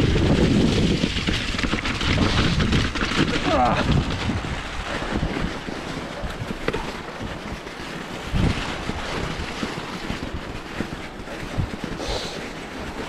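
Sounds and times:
bike rattling and knocking: 0:00.0 - 0:13.0
wind buffeting microphone: 0:00.0 - 0:13.0.

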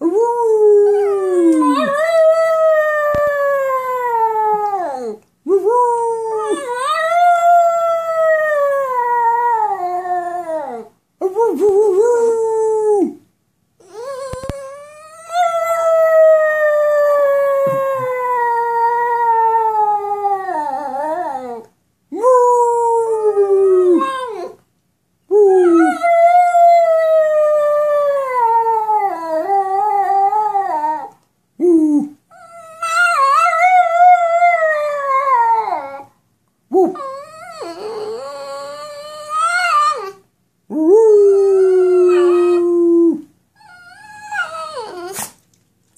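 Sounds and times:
dog howling: 0:00.8 - 0:05.2, 0:41.2 - 0:45.3.

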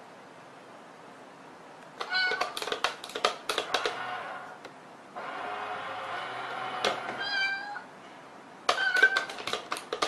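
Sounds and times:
toy meow: 0:02.0 - 0:02.6, 0:07.2 - 0:07.9, 0:08.7 - 0:09.4
sharp mechanical clicks: 0:02.0 - 0:04.2.

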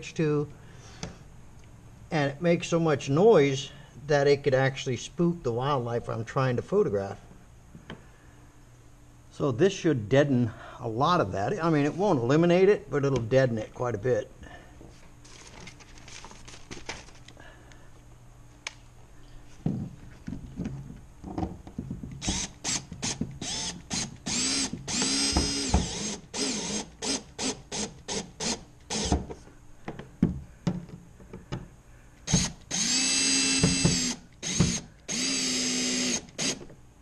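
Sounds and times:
power drill driving screws: 0:22.2 - 0:29.2, 0:32.3 - 0:36.6.

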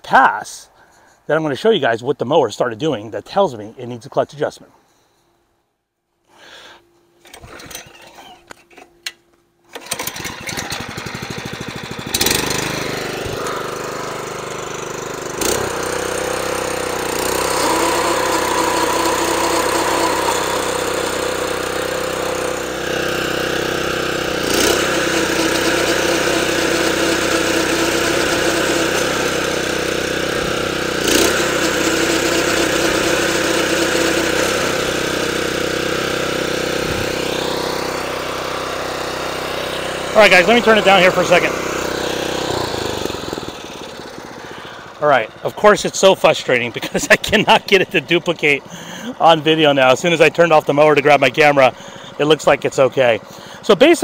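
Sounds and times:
lawn mower engine running: 0:07.2 - 0:54.0.

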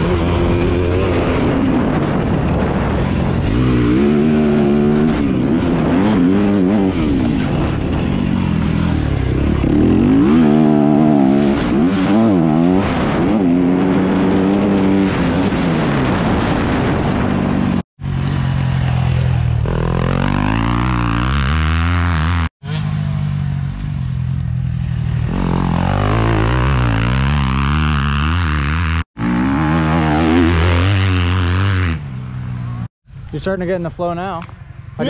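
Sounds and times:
wind rush: 0:00.0 - 0:17.8
motocross bike engine revving: 0:00.0 - 0:22.9, 0:24.6 - 0:32.9.

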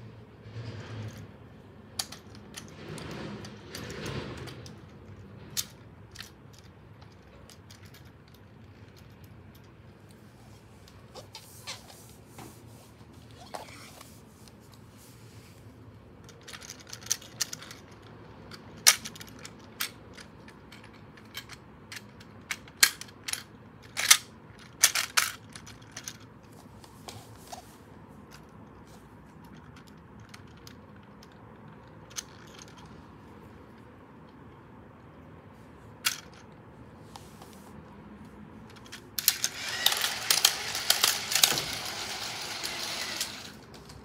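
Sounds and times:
toy train cars clicking: 0:01.9 - 0:09.8, 0:16.2 - 0:26.3, 0:29.4 - 0:33.1, 0:36.0 - 0:36.6, 0:38.7 - 0:44.0.

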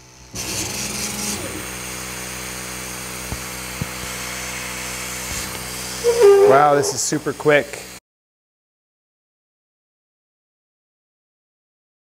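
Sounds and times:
air pump hissing and humming: 0:00.0 - 0:08.0.

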